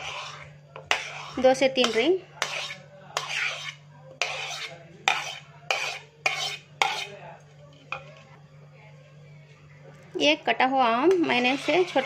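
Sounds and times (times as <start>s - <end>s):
metal spoon scraping ceramic plate: 0.0s - 7.2s, 11.2s - 12.0s.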